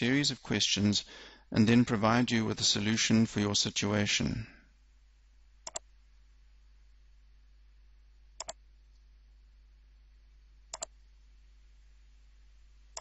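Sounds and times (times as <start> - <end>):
faint steady hum: 0.0 - 13.0
computer mouse clicks: 5.6 - 5.8, 8.4 - 8.6, 10.7 - 11.0.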